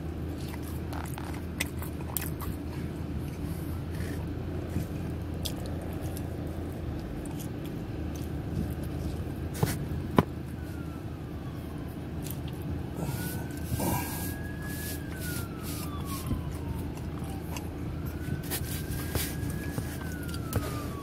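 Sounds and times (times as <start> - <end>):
steady low rumble: 0.0 - 21.0
siren wailing: 8.4 - 21.0.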